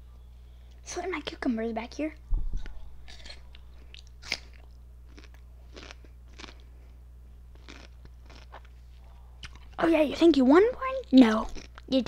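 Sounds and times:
cucumber crunching chewed: 0:02.6 - 0:06.7, 0:07.5 - 0:09.8, 0:11.1 - 0:11.9.

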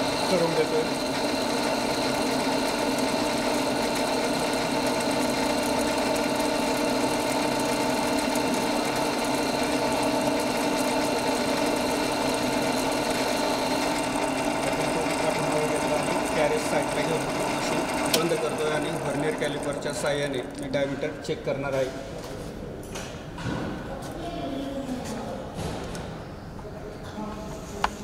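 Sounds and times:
high whine of cutting: 0:00.0 - 0:21.0
lathe machine hum: 0:00.0 - 0:21.7.

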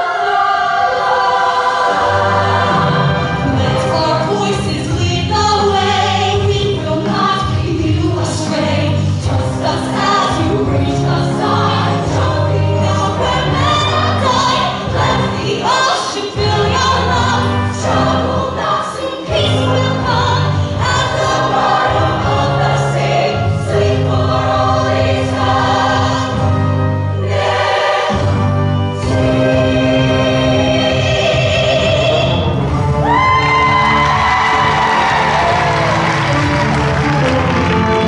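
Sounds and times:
women's choir singing: 0:00.0 - 0:32.5
live band playing: 0:34.3 - 0:38.0.

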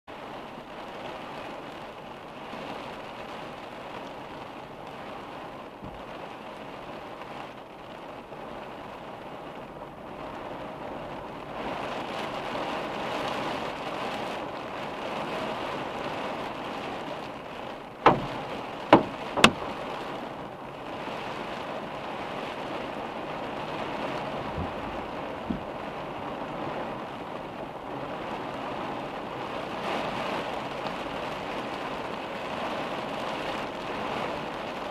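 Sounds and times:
rain drumming on car roof: 0:00.1 - 0:34.9
sharp knocks: 0:18.0 - 0:19.8.

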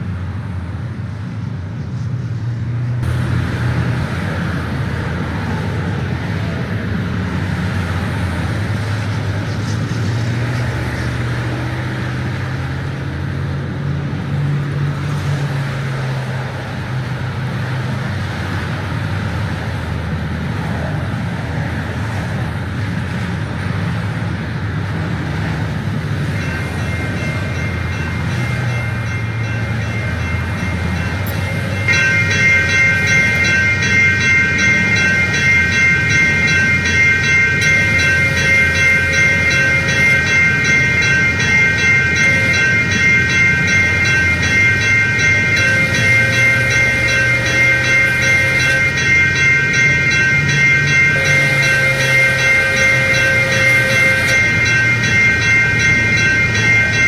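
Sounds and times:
rail noise: 0:00.0 - 0:57.0
train engine drone: 0:00.0 - 0:57.0
high steady tones: 0:25.8 - 0:57.0.

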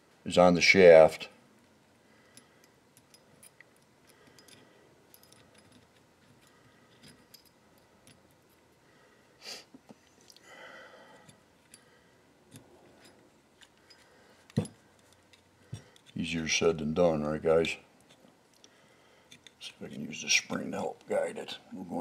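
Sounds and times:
small steel parts clicking: 0:02.3 - 0:08.7, 0:12.5 - 0:16.3, 0:18.0 - 0:20.1.

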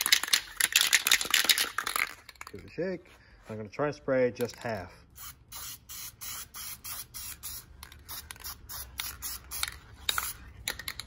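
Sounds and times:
aerosol can spraying: 0:05.2 - 0:10.4.

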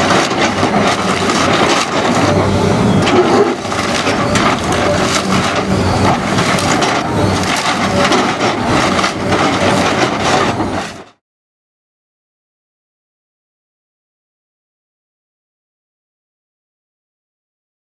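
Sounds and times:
timber splintering cracks: 0:00.0 - 0:02.4, 0:03.0 - 0:10.9
excavator bucket crunching debris: 0:00.0 - 0:11.2.

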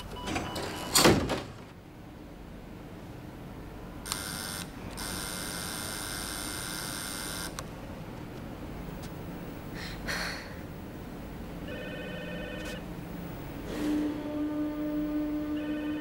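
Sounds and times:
electric doorbell ringing: 0:11.7 - 0:12.7.

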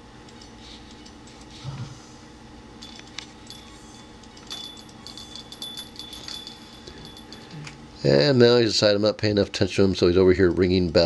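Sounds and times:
small bell jingling: 0:02.8 - 0:07.6.

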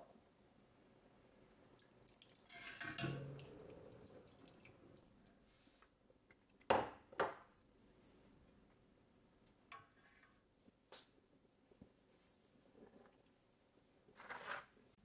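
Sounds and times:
soup sloshing and pouring: 0:01.8 - 0:05.2
ladle clinking against pot: 0:02.5 - 0:03.4.

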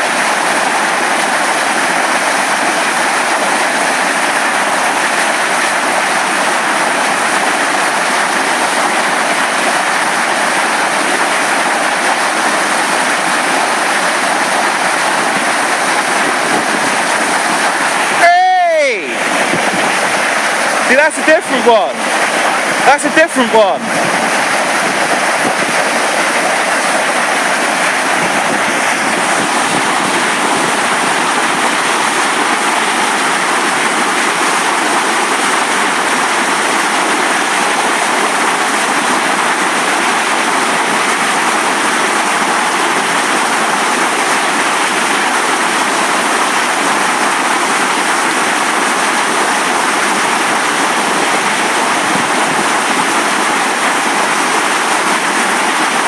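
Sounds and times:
white water rushing over rocks: 0:00.0 - 0:56.0.

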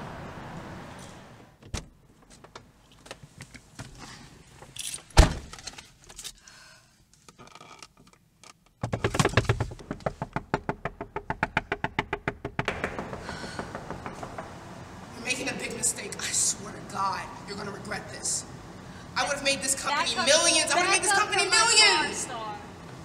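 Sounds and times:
keys jangling: 0:04.8 - 0:05.1
rapid tapping: 0:08.8 - 0:14.8.

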